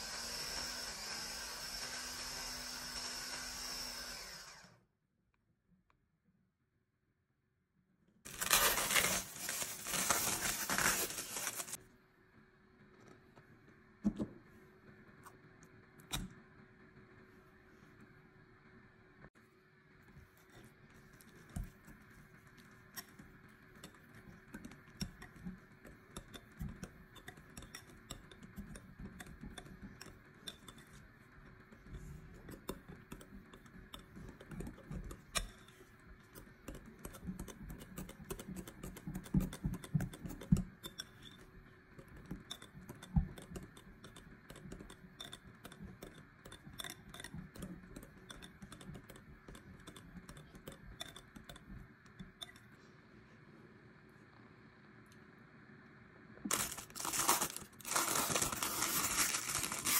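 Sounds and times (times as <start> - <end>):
whisk clicking against glass bowl: 23.0 - 31.0, 42.0 - 52.6.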